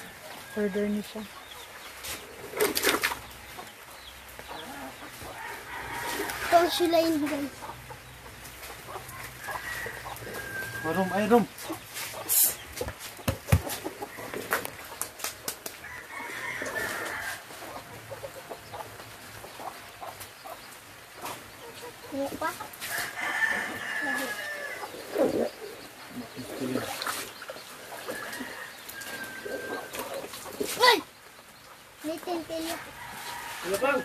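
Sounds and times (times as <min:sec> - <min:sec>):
rooster crowing: 0:05.3 - 0:06.8, 0:09.4 - 0:11.4, 0:15.8 - 0:17.6, 0:22.9 - 0:25.0, 0:28.1 - 0:30.1, 0:32.8 - 0:34.0.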